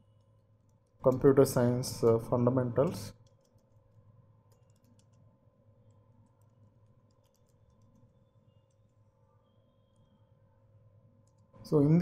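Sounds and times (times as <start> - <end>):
keyboard typing clicks: 2.8 - 5.3, 5.9 - 9.0, 11.2 - 11.5.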